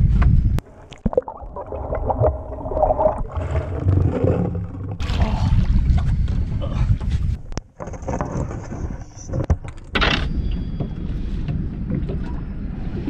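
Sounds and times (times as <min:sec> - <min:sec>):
water splashing and gurgling: 0:00.6 - 0:07.1
wind buffeting microphone: 0:05.0 - 0:07.6.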